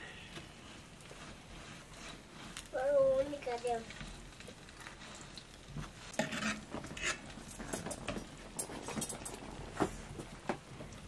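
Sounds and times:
faint sizzle: 0:00.0 - 0:09.6
metal spatula scraping frying pan: 0:06.1 - 0:07.7.

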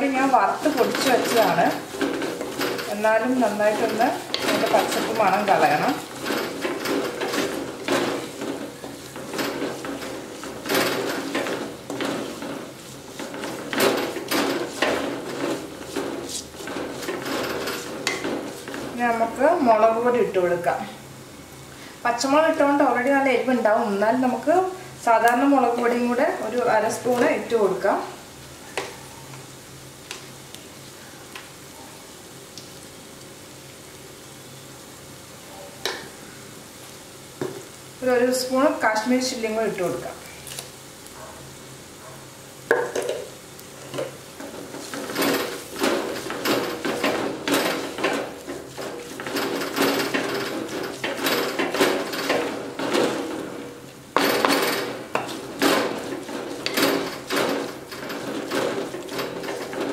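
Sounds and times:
wooden spatula scraping clay pot: 0:00.0 - 0:20.0, 0:43.9 - 0:59.9
onions sauteing: 0:00.0 - 0:59.9.

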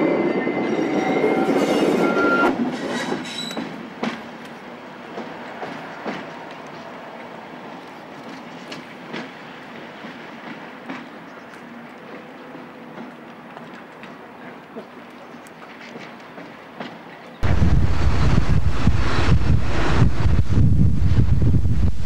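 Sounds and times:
diesel train rumble: 0:17.4 - 0:22.0.

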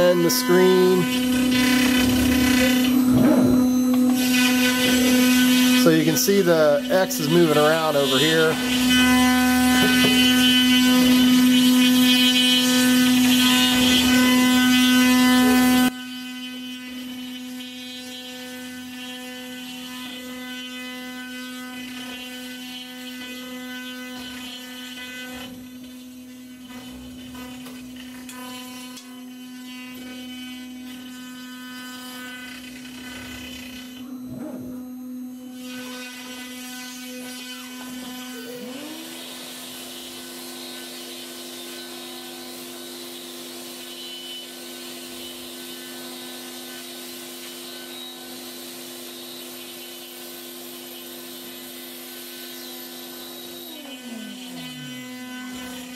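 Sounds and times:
vacuum motor whine: 0:00.0 - 0:15.9, 0:32.6 - 0:35.6
router spindle whine: 0:00.0 - 0:55.9.

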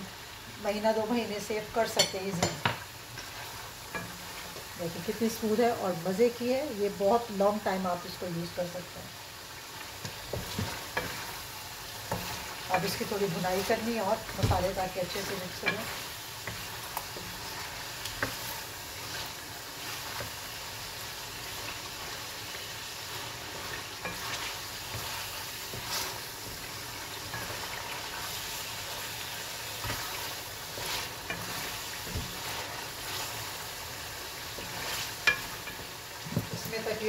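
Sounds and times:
chicken sizzling in oil: 0:00.0 - 0:37.0
wooden spatula scraping pan: 0:10.0 - 0:20.6, 0:23.0 - 0:33.6.

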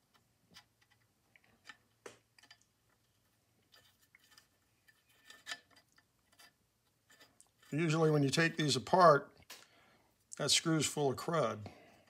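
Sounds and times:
screwdriver clicks and scrapes: 0:00.0 - 0:07.8.

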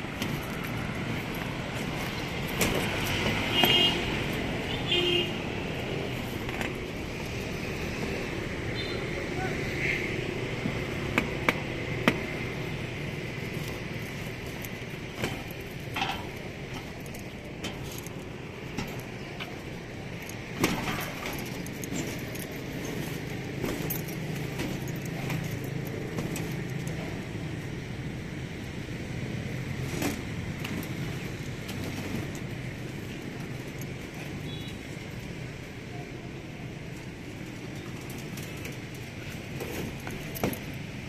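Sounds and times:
road traffic hum: 0:00.0 - 0:41.0.

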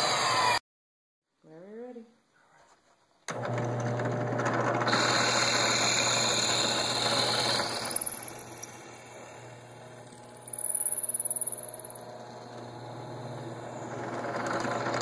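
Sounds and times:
drill bit boring into wood: 0:03.3 - 0:15.0
drill press motor hum: 0:03.3 - 0:15.0
high whine: 0:07.5 - 0:14.2.

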